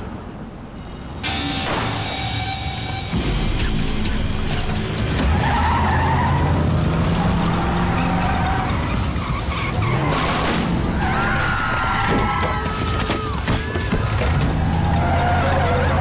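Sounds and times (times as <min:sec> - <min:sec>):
car engine revving: 0:04.5 - 0:11.2
tyres squealing: 0:05.0 - 0:16.0.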